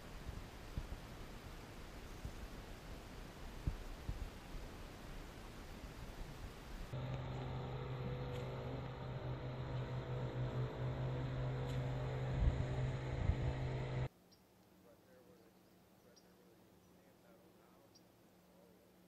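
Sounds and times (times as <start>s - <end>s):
faint outdoor chirping: 6.9s - 19.0s
motor humming: 7.0s - 14.1s.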